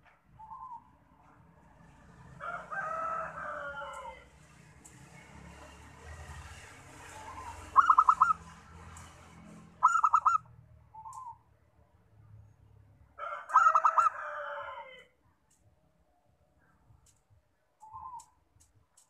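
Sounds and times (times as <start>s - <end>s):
dove cooing: 7.1s - 8.4s, 9.8s - 10.4s.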